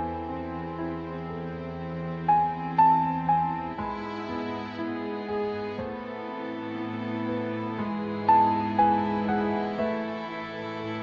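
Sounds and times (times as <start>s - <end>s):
slow sad instrumental music: 0.0s - 11.0s.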